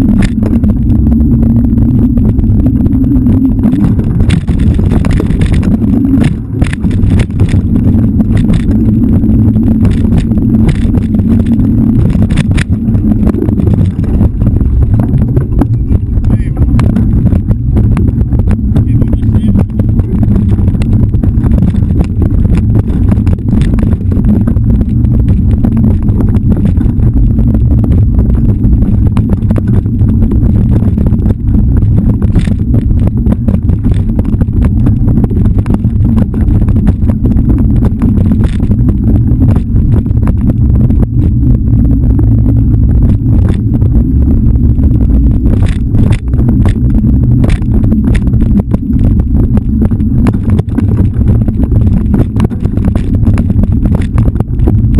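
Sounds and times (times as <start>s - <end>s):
wind buffeting camera: 0.0s - 54.9s.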